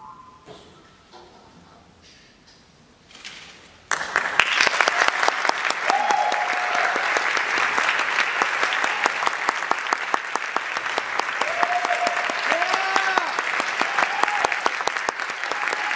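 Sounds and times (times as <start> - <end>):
audience applause: 3.9 - 15.9.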